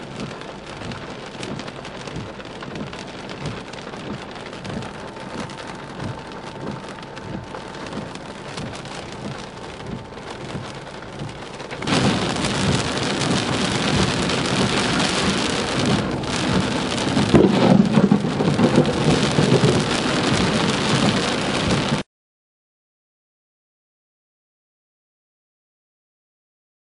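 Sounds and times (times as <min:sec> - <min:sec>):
heavy rain pelting a car: 0:00.0 - 0:22.1.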